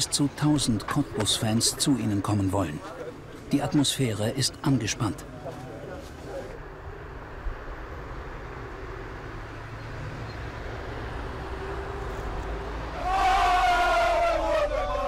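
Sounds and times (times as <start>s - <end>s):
street traffic rumble: 0.0s - 15.0s
crowd chanting: 12.7s - 15.0s.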